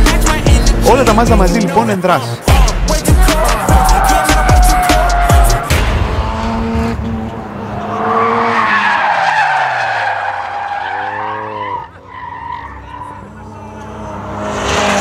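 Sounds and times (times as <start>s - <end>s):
car engine revving: 0.0s - 15.0s
tyres squealing: 3.2s - 5.7s, 7.8s - 13.4s.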